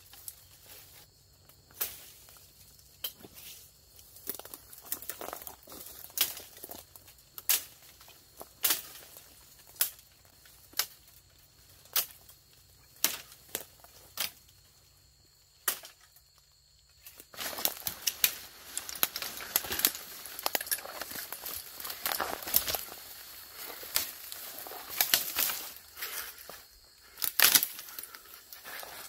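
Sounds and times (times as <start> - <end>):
leaves and branches rustling: 0.0 - 29.0
footsteps crunching through dry brush: 3.3 - 10.7, 17.0 - 29.0
twigs snapping: 4.2 - 11.2, 11.8 - 14.5, 15.6 - 16.2, 17.0 - 29.0.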